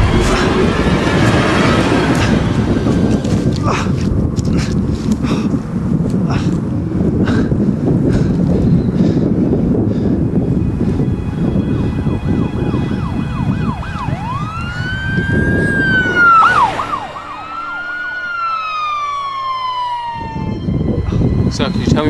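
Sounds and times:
wind rumble on microphone: 0:00.0 - 0:22.0
police siren yelping and wailing: 0:10.5 - 0:22.0.

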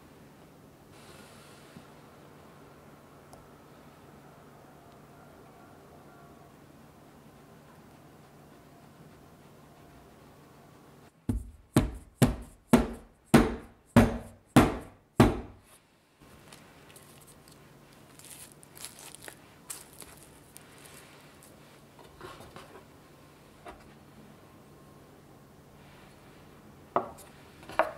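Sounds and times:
plastic wrap crinkling: 0:16.3 - 0:21.9.

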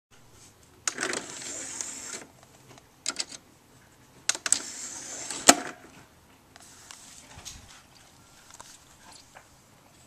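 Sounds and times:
disc tray motor whirring: 0:01.1 - 0:02.3.

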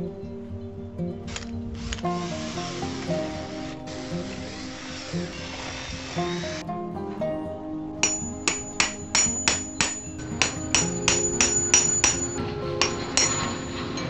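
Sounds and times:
background music: 0:00.0 - 0:14.0
hammer striking steel rod: 0:08.0 - 0:14.0.

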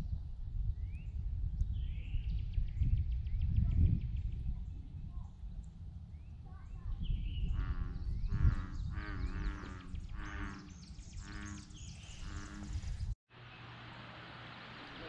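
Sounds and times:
wind rumble on microphone: 0:00.0 - 0:13.2.

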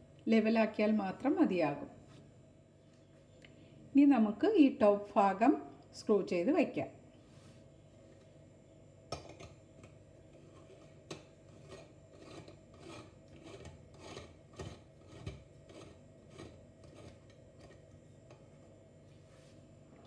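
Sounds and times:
metal thread scraping: 0:10.4 - 0:17.7.

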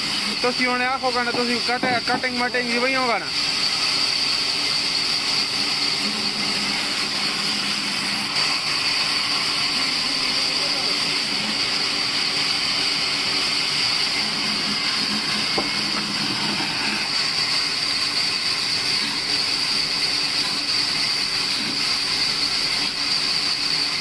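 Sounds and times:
bandsaw cutting wood: 0:00.0 - 0:24.0.

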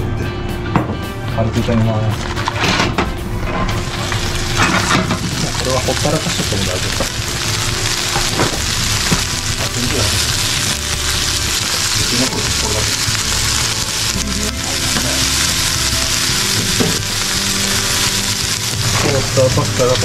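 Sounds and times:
vegetables sizzling in frying pan: 0:03.4 - 0:20.0
metal tongs turning vegetables: 0:03.6 - 0:20.0.

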